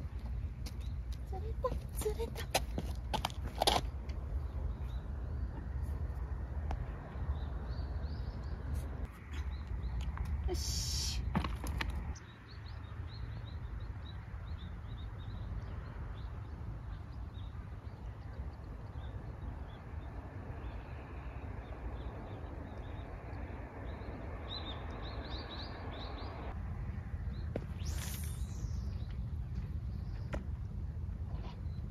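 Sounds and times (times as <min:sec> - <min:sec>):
small birds chirping: 0:11.9 - 0:26.6, 0:27.2 - 0:31.9.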